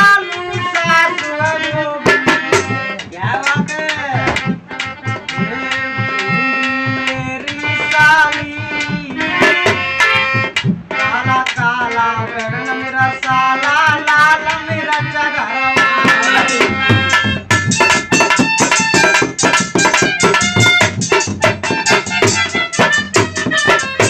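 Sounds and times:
man singing: 0:00.0 - 0:17.2
dholak drum beat: 0:00.0 - 0:24.0
harmonium chords: 0:00.0 - 0:24.0.

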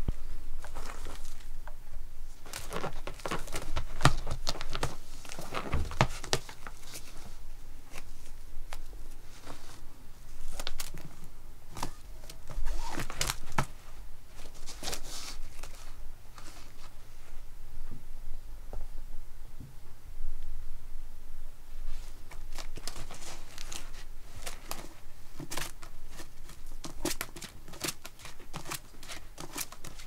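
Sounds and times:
cat scratching a crinkly toy: 0:00.6 - 0:01.6, 0:02.3 - 0:17.0, 0:21.9 - 0:30.0.

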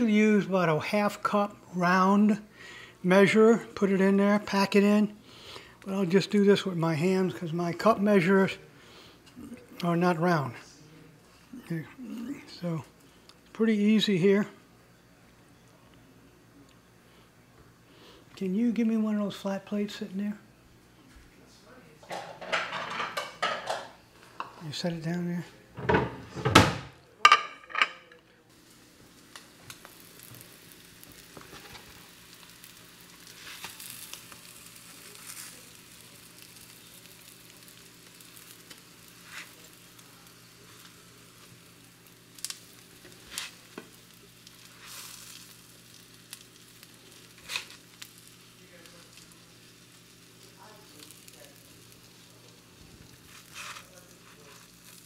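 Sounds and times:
food sizzling in oil: 0:28.5 - 0:55.0.

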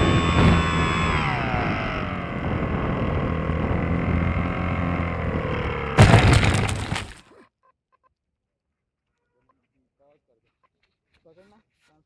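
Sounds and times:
model plane motor whining: 0:00.0 - 0:06.0
plane crashing with clatter: 0:06.0 - 0:07.2.

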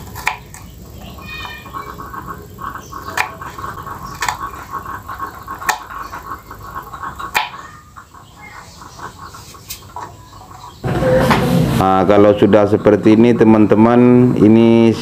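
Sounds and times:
knife tapping wood: 0:00.2 - 0:00.7, 0:03.1 - 0:03.4.

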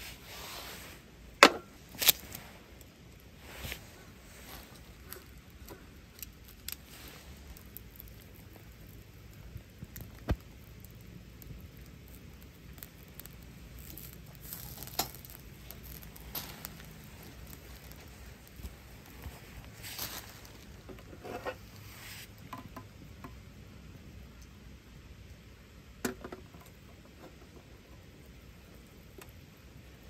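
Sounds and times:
small fires crackling: 0:00.0 - 0:30.0
sleeve rustling: 0:15.8 - 0:20.8.

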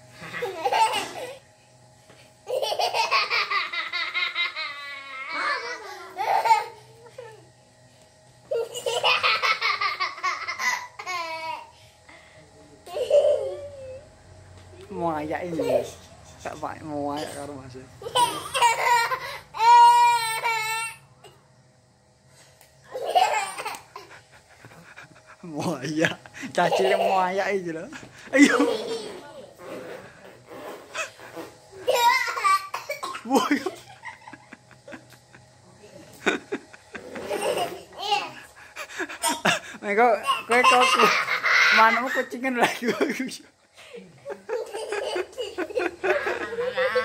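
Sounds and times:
rhythmic laughter: 0:23.0 - 0:27.2, 0:28.0 - 0:29.1, 0:33.2 - 0:35.6, 0:36.2 - 0:39.8, 0:40.5 - 0:47.0.

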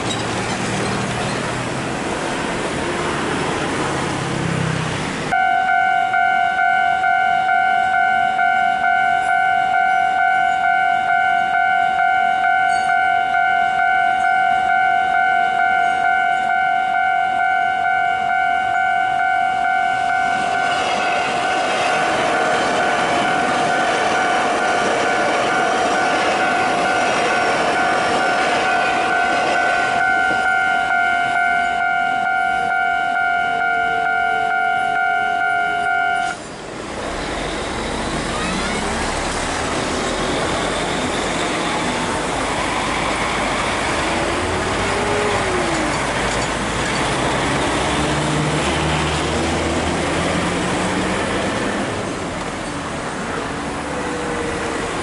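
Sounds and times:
electric train rolling past: 0:00.0 - 0:55.0
road traffic noise: 0:00.0 - 0:55.0
level crossing warning bell: 0:05.3 - 0:36.4
engines revving: 0:20.0 - 0:31.4, 0:36.7 - 0:55.0.

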